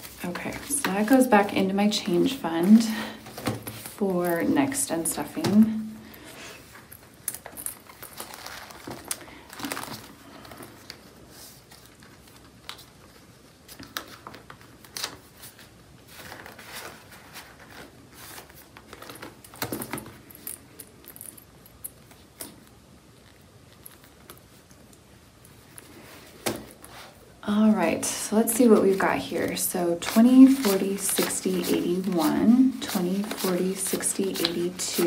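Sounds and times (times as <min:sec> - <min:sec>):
paper banknotes rustling: 0:00.0 - 0:04.6, 0:27.8 - 0:35.0.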